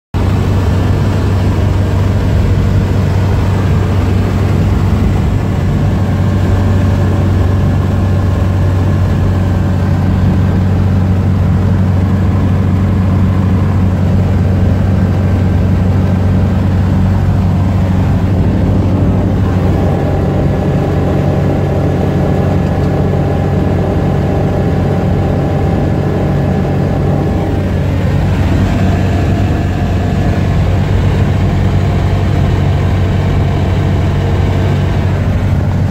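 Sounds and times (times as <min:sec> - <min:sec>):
aircraft engine humming: 0:00.2 - 0:35.9
rushing air noise: 0:15.2 - 0:35.9.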